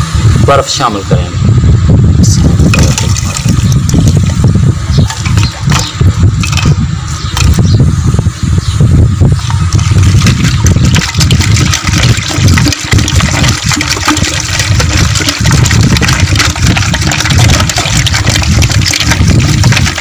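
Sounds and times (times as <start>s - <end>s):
low rumble: 1.3s - 20.0s
liquid sloshing in a pot: 2.7s - 4.4s, 5.0s - 6.7s, 9.7s - 20.0s.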